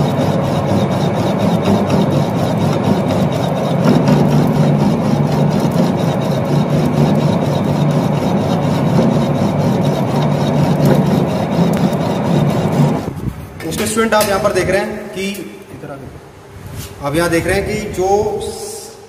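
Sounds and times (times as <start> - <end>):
lathe motor and gearbox hum: 0.0 - 14.5.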